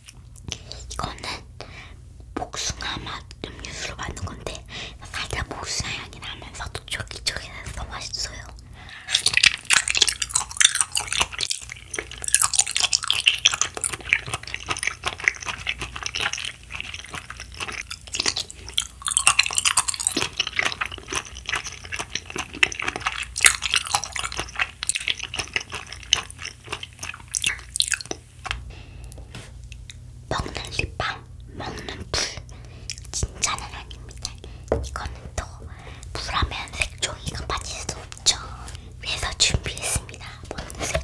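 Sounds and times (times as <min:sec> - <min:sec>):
chewing sticky candy: 0:03.6 - 0:41.0.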